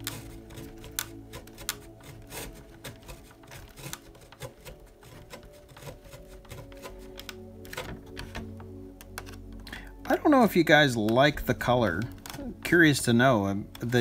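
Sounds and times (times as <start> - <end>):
screwdriver and screw clicking: 0.0 - 10.1, 12.0 - 12.5
soft background music: 0.0 - 14.0.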